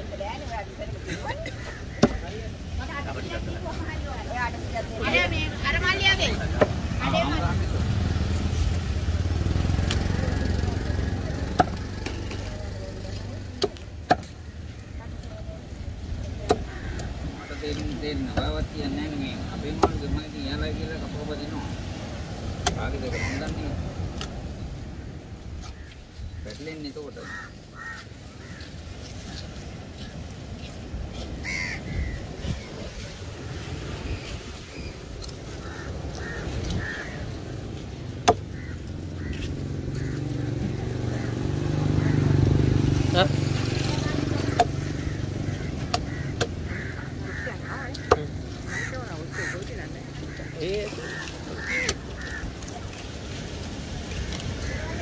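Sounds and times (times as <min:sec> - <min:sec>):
crow cawing: 0:16.5 - 0:18.0, 0:23.0 - 0:23.6, 0:27.1 - 0:29.0, 0:31.1 - 0:32.4, 0:35.5 - 0:42.4, 0:44.4 - 0:52.9, 0:54.5 - 0:55.0.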